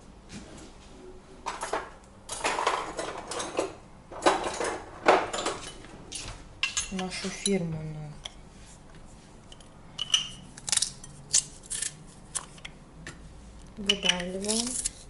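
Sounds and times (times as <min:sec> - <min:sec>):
metal utensils clattering: 0:01.5 - 0:05.9.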